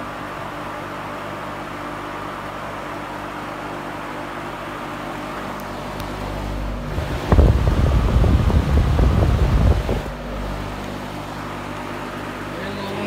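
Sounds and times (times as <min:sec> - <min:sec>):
box fan motor hum: 0:00.0 - 0:13.0
wind buffeting microphone: 0:06.8 - 0:10.2.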